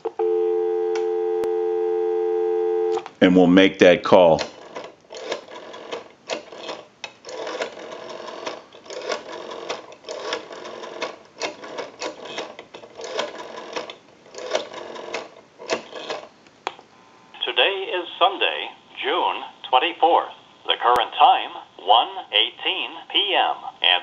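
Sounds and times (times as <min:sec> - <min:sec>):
rotary telephone dial clicking: 0:04.4 - 0:16.3.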